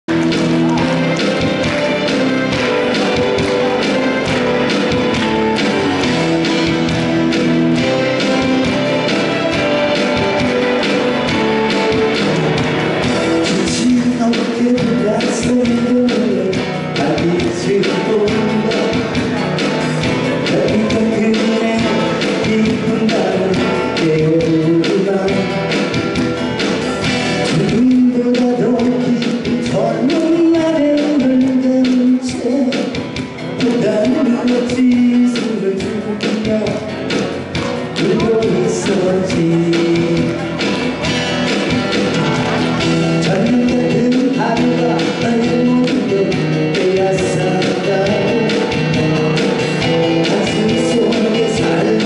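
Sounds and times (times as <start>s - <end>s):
pop song with strummed guitar: 0.1s - 52.0s
steady beat: 0.1s - 52.0s
man singing into a microphone: 13.3s - 26.2s, 27.3s - 41.0s, 43.1s - 52.0s.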